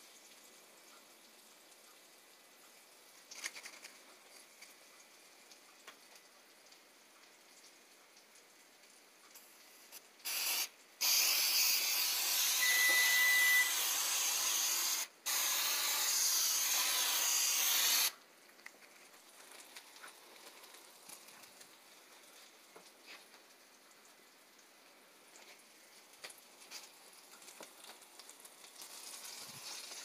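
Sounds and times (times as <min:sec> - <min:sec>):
aerosol spray hissing onto metal: 0:10.2 - 0:18.2.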